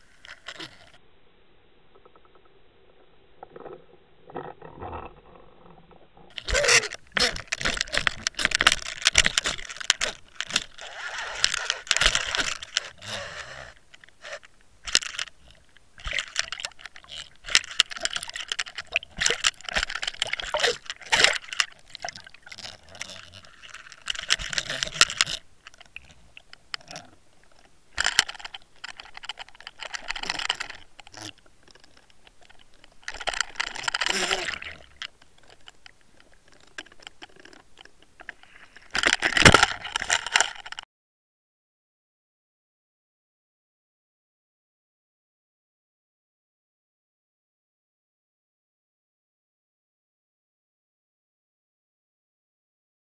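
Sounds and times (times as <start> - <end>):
water rushing around underwater camera: 1.8 - 40.8.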